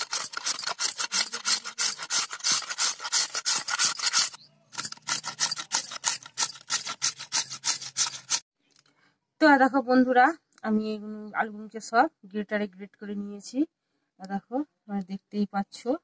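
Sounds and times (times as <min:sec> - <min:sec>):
potato grated on metal grater: 0:00.0 - 0:08.4.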